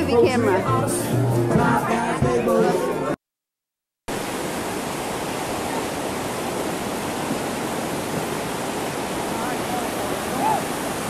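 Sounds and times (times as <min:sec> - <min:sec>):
whitewater rapids rushing: 0:04.1 - 0:11.0.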